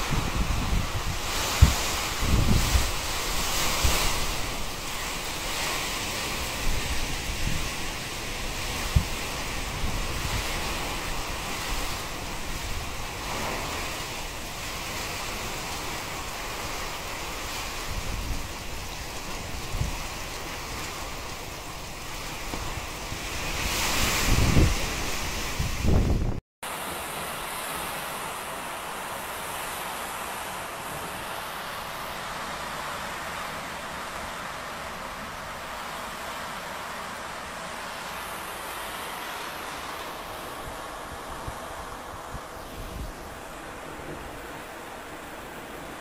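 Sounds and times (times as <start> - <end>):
wind buffeting microphone: 0.0 - 26.4, 40.2 - 46.0
wind and heavy rain: 0.0 - 46.0.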